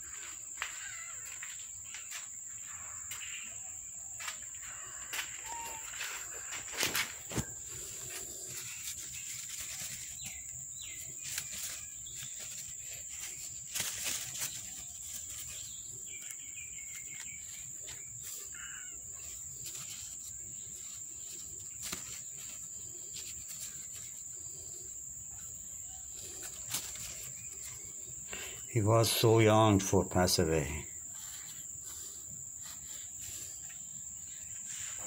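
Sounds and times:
bird calls: 0.0 - 29.5
paper tissue rustling: 5.2 - 28.0, 30.4 - 35.0.

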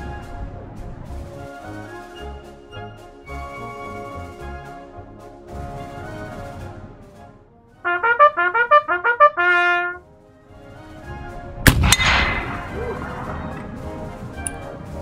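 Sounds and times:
bugle call: 7.8 - 10.0
rifle shots with rolling echo: 11.6 - 15.0.

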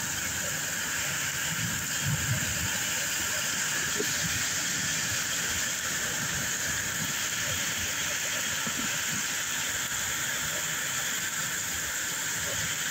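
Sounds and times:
storm hiss: 0.0 - 12.9.

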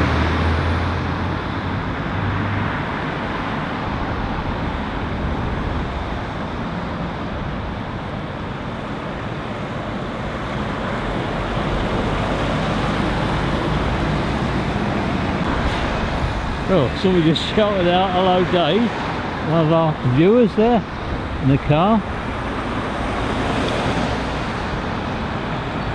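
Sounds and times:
cars passing: 0.0 - 25.9.

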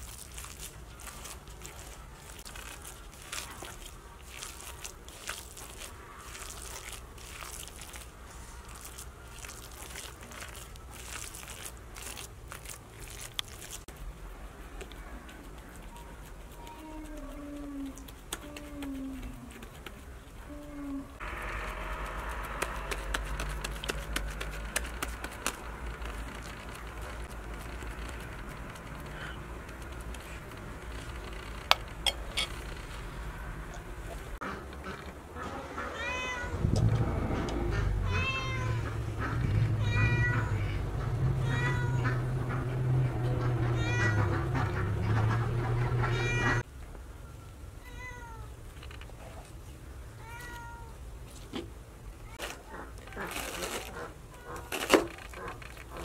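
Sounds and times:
kneading wet minced meat: 0.0 - 31.2
cat meowing: 35.9 - 36.6, 38.0 - 39.0, 39.8 - 40.6, 41.4 - 42.0, 43.6 - 44.3, 46.0 - 46.6, 50.2 - 51.0.

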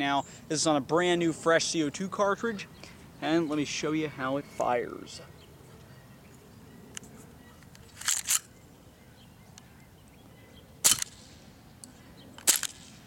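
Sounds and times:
pistol slide cycling: 6.9 - 8.6, 10.8 - 13.0
airsoft pistol shots: 10.8 - 11.4, 12.4 - 13.0.

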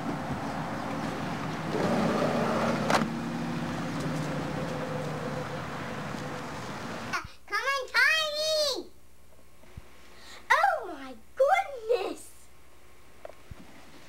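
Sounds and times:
van engine driving off: 0.0 - 7.1.

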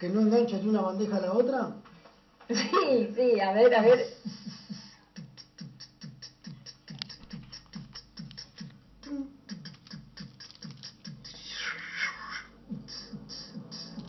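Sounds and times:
beatboxed hi-hat clicks: 3.9 - 11.7, 12.7 - 14.0
beatboxed kick sounds: 4.0 - 11.8, 12.7 - 14.0
hissing scratch burst: 9.5 - 12.0.

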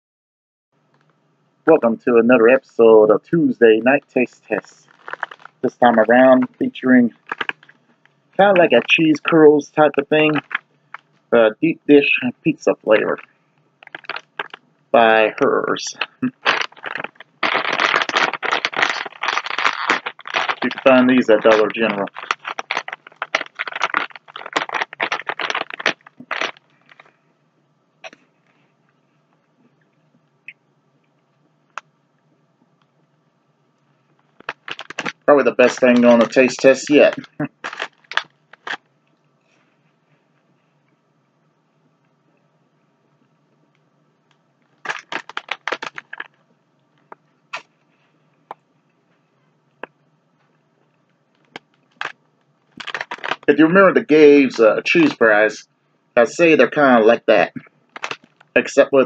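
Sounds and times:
crunching cheese curls: 3.7 - 11.2, 12.1 - 27.2, 34.1 - 38.9, 44.7 - 46.4, 50.8 - 53.6, 57.6 - 58.6
plastic snack bag crackling: 4.1 - 7.7, 8.4 - 11.1, 12.8 - 14.6, 15.8 - 27.1, 34.4 - 38.8, 44.8 - 46.3, 51.4 - 53.5, 57.9 - 58.6.

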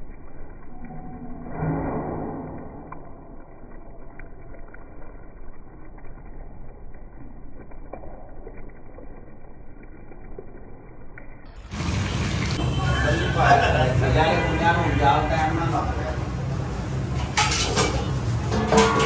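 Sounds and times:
milk pouring and splashing: 0.0 - 0.9, 2.6 - 12.8.

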